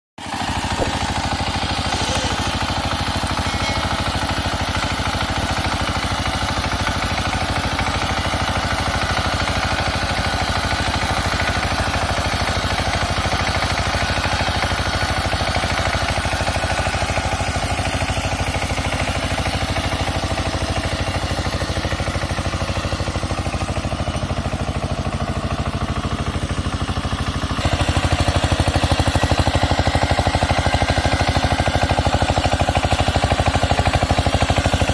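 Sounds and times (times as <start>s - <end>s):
diesel tiller engine running: 0.2s - 34.9s.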